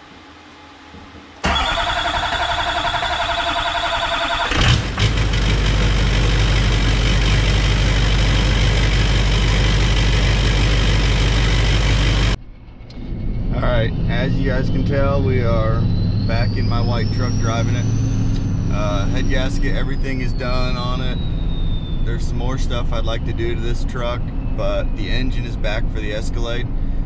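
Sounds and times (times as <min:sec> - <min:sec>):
starter cranking with pulsing whine: 0:00.6 - 0:25.8
diesel engine idling: 0:01.2 - 0:12.8, 0:13.8 - 0:27.0.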